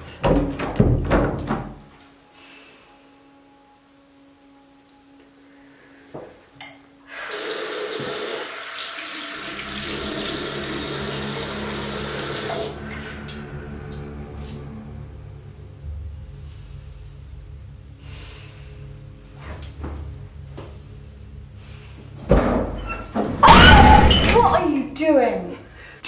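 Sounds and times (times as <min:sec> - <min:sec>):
tap water running into sink: 0:07.2 - 0:12.8.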